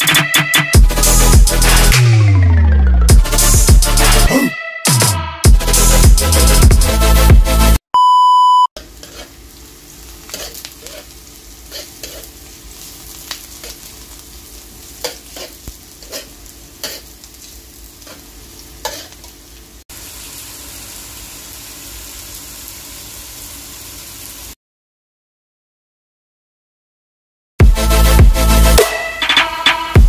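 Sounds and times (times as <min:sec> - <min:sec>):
metal spoon scraping a pan: 0:08.8 - 0:09.4, 0:10.2 - 0:12.5, 0:15.0 - 0:17.2, 0:18.0 - 0:19.3
chicken frying: 0:08.8 - 0:24.6
onion and garlic sizzling in oil: 0:08.8 - 0:24.6.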